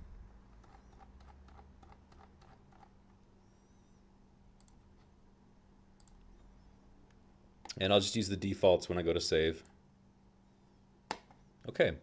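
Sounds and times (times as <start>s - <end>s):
low steady hum: 0.0s - 12.0s
computer clicks: 4.6s - 4.8s, 6.0s - 6.2s.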